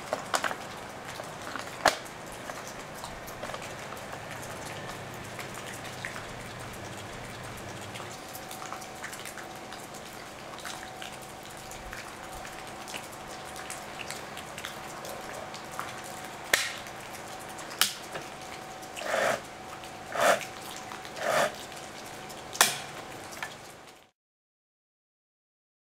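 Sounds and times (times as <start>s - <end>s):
faint ticks and drips: 0.0s - 24.1s
chainsaw chain rasping: 19.0s - 19.4s, 20.1s - 20.5s, 21.1s - 21.6s.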